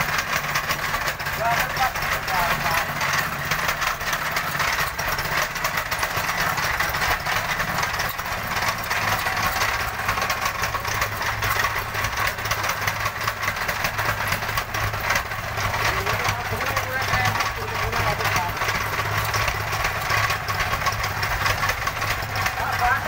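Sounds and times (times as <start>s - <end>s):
tamping rammer pounding ground: 0.0s - 23.0s
man talking: 1.4s - 3.0s, 15.8s - 18.8s, 22.6s - 23.0s.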